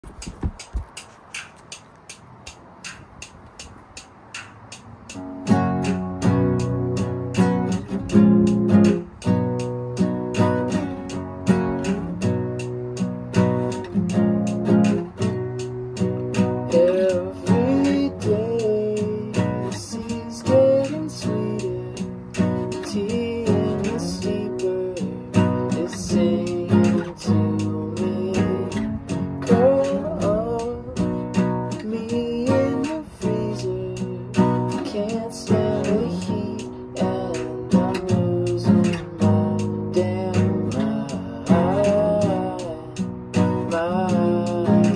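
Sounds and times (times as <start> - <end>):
acoustic guitar strumming: 0.0 - 44.9
man singing: 16.4 - 44.9.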